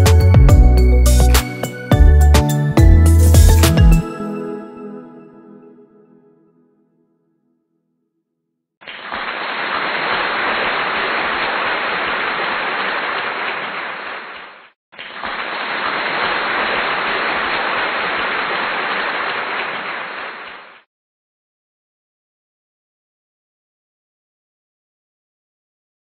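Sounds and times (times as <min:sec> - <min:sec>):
crowd applause: 0:08.8 - 0:20.8.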